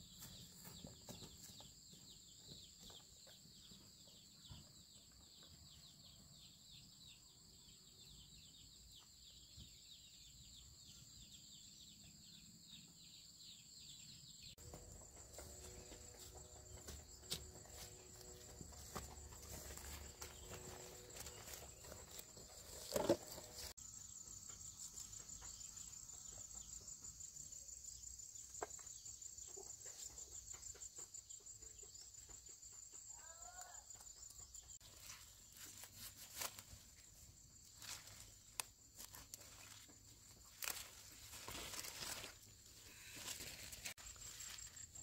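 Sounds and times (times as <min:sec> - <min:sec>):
leaves rustling: 0:34.9 - 0:45.0.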